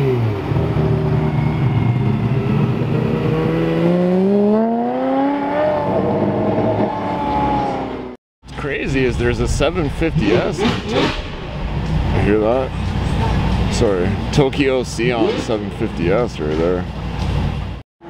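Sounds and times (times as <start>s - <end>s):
sports car engine revving: 2.0s - 8.1s.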